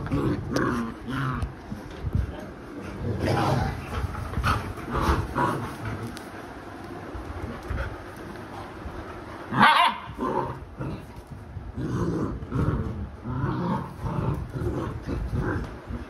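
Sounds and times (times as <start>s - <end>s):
dogs growling: 0.0s - 1.8s, 2.8s - 6.6s, 9.4s - 16.0s.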